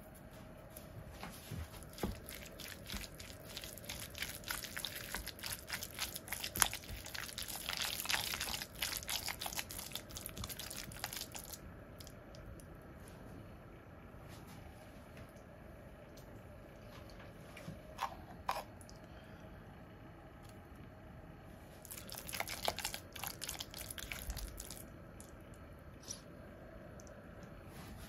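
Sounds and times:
spatula stirring in glass bowl: 1.8 - 11.3.

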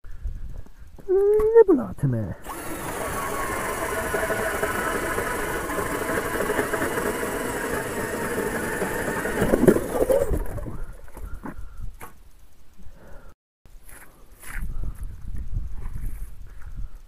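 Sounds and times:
auger bit grinding ice: 2.4 - 10.8
cordless drill motor whine: 2.4 - 11.0.

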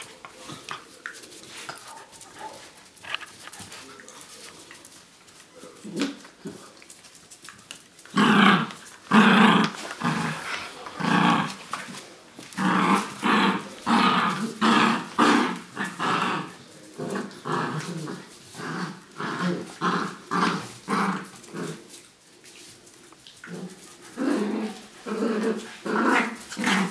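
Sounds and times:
dogs growling in play: 7.4 - 22.3, 23.2 - 26.9.

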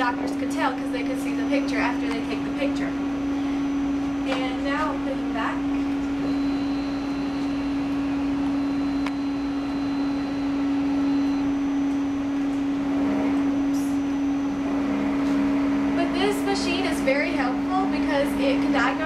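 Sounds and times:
faint high whine: 0.0 - 19.0
motorized patient table moving: 0.0 - 19.0
scanner humming with fan noise: 0.0 - 19.0.

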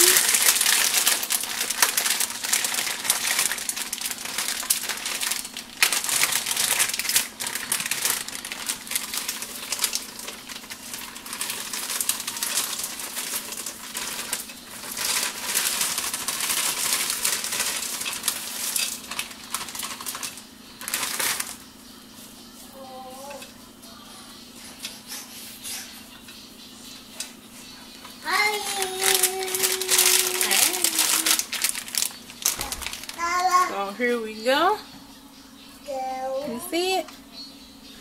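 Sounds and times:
frozen beans rattling into pot: 0.0 - 21.6, 28.3 - 33.3
plastic bag crinkling: 0.0 - 21.6, 28.3 - 33.5.

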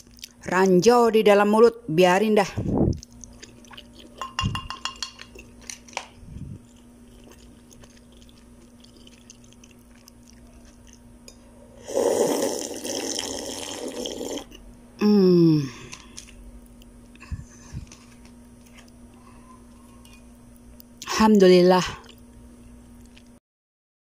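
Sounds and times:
spoon knocking glass bowl: 4.2 - 5.3
loud slurping: 11.8 - 14.6.

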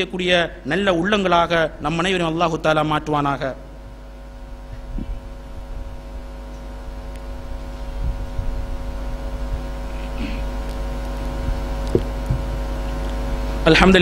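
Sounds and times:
electrical mains hum: 0.0 - 14.0.

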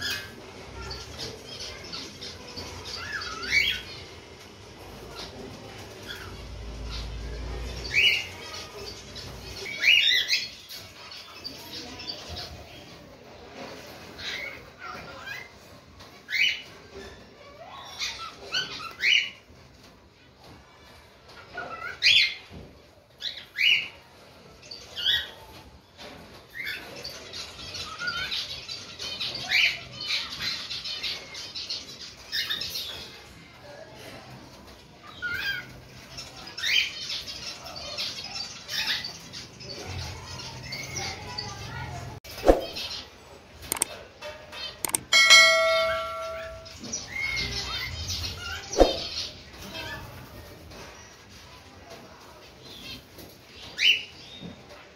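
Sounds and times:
rapid bird chatter: 0.0 - 19.9, 23.1 - 54.9
notification bell chime: 44.9 - 46.8.

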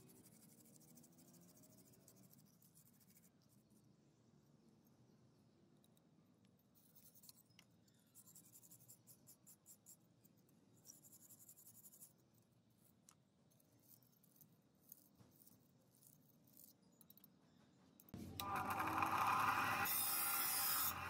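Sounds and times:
hand tool scratching metal: 18.4 - 21.0.

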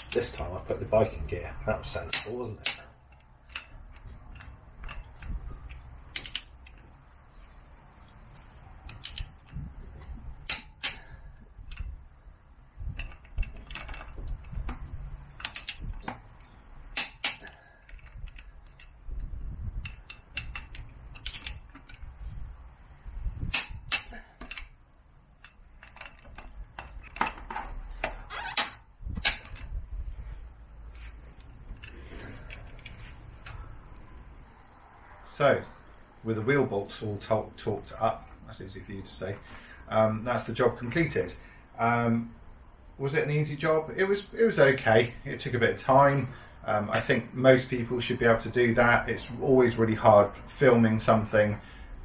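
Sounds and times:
torque wrench clicking: 2.1 - 6.8, 8.9 - 9.6, 10.4 - 11.9, 15.3 - 16.0, 16.9 - 22.0, 23.4 - 24.7.

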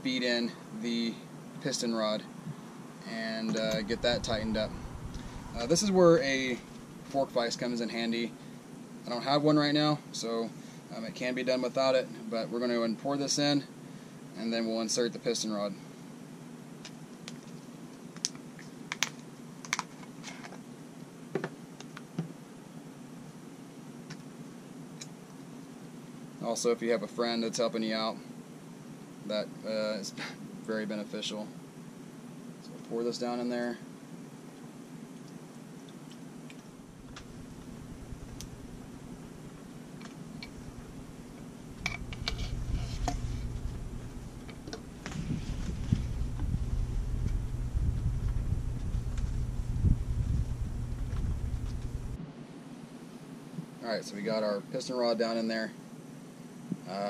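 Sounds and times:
wind rumble on microphone: 3.6 - 7.0, 41.8 - 44.4, 45.0 - 52.2.

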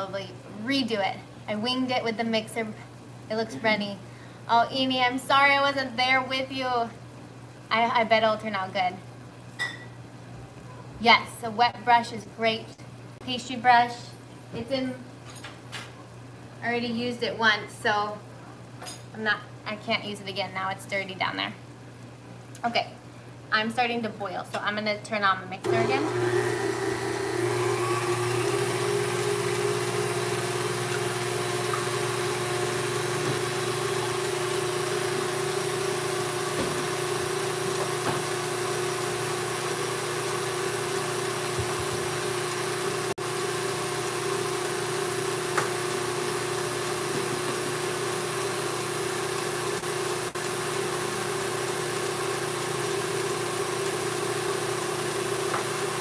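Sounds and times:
stand mixer motor hum: 25.7 - 56.0.

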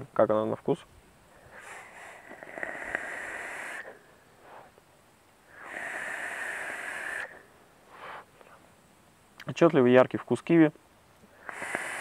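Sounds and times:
air hissing and whistling: 1.4 - 4.8, 5.4 - 8.3, 11.3 - 12.0.

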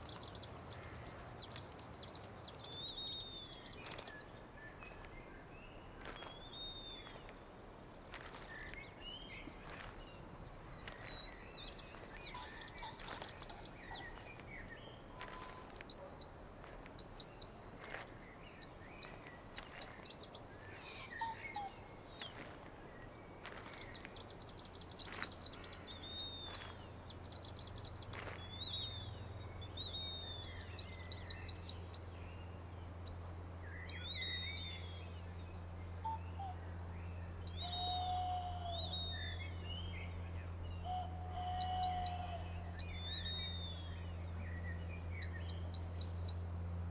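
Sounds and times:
bird-like chirps and whistles: 0.0 - 5.0, 6.0 - 7.2, 8.4 - 16.4, 18.6 - 22.5, 23.6 - 31.7, 33.7 - 35.2, 37.4 - 40.1, 40.7 - 46.4
low steady hum: 0.0 - 46.9.

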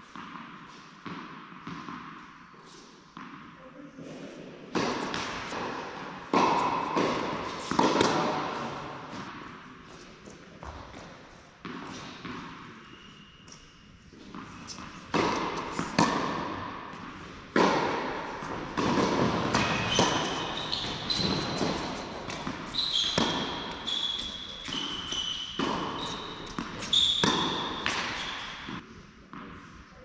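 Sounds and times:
tennis ball bouncing: 0.0 - 2.3, 4.7 - 12.7, 13.5 - 29.6
racket striking tennis ball: 4.7 - 12.9, 13.5 - 29.6
sneakers squeaking on court: 11.6 - 28.8.

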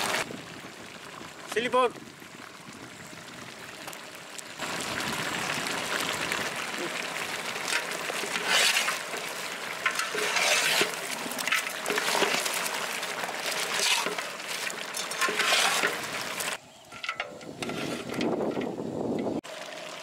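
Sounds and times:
ladle stirring meat in a pot: 6.6 - 18.7.

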